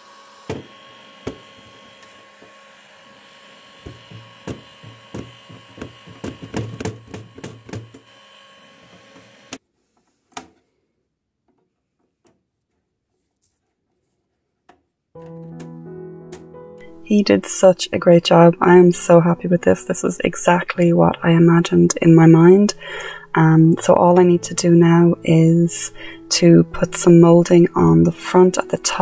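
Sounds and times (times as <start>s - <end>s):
heat gun blowing: 0.0s - 9.6s, 22.7s - 23.4s
hand scraper scraping paint: 0.0s - 10.6s
guitar music: 15.2s - 29.0s.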